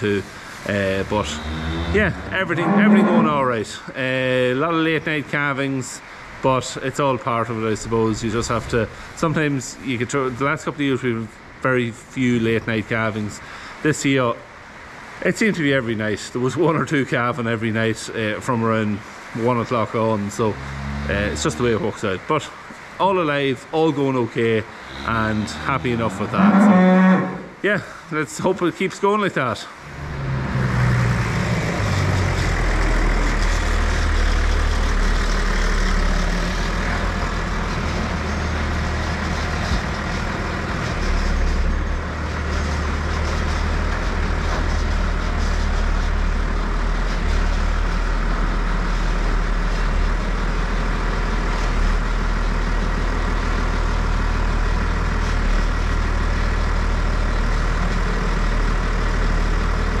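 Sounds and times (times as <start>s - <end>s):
tractor diesel engine running: 31.3s - 60.0s.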